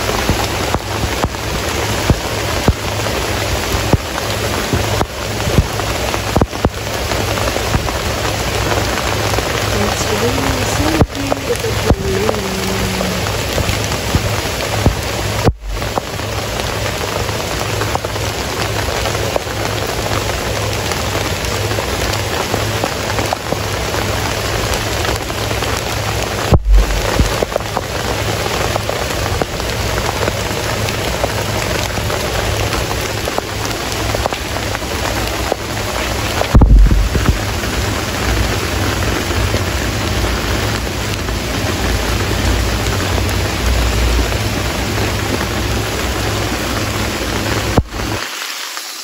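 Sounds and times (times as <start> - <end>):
steady rain falling: 0.0 - 49.0
brief low thump: 36.5 - 37.4.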